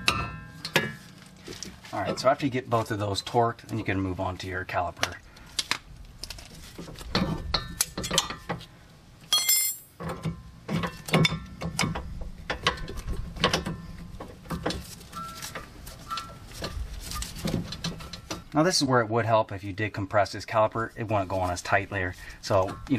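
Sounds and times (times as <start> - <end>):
metallic clicks clunks and scrapes: 7.1 - 8.6, 10.0 - 18.5
short high metallic ring: 9.3 - 10.0.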